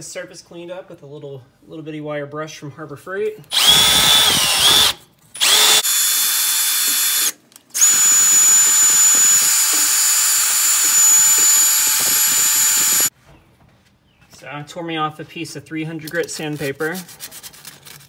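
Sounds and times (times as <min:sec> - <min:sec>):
drill with wire brush on metal: 0:03.5 - 0:13.1.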